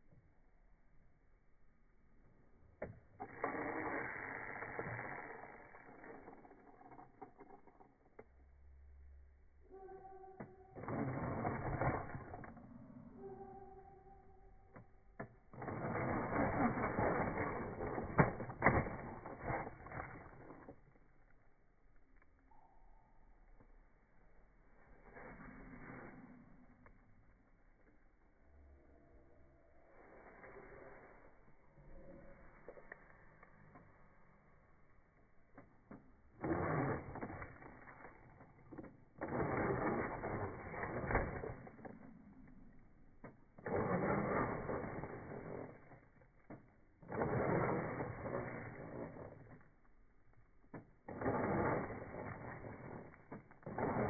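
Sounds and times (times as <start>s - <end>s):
rc car motor whirring: 3.2s - 8.2s, 10.7s - 13.2s, 14.8s - 20.8s, 35.9s - 41.9s, 43.2s - 49.9s, 50.7s - 54.0s.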